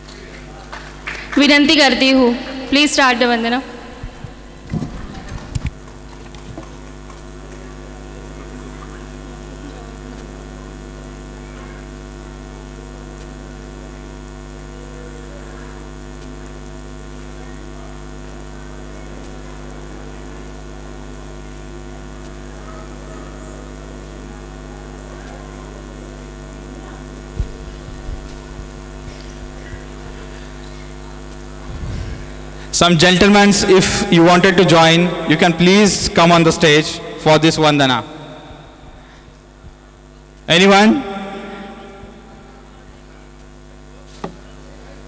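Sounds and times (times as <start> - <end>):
faint scattered voices: 0.0 - 12.8, 13.4 - 32.8, 38.0 - 45.0
electrical mains hum: 0.0 - 45.0
thump: 4.7 - 5.2.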